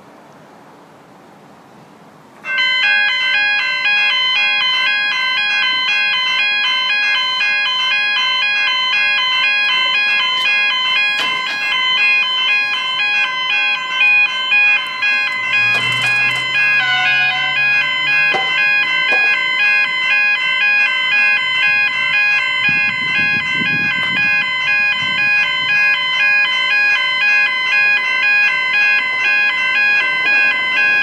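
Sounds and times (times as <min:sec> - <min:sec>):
faint outdoor background noise: 0:00.0 - 0:05.8
level crossing warning bells: 0:02.4 - 0:31.0.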